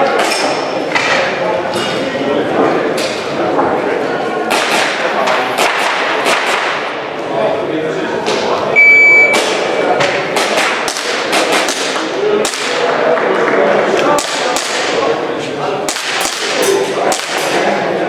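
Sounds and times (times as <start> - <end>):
shot timer beep: 8.8 - 9.4.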